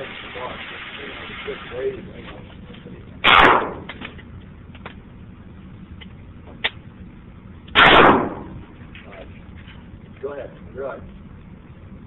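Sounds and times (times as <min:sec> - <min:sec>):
revolver shot echoing indoors: 0:03.2 - 0:04.2, 0:07.7 - 0:08.8.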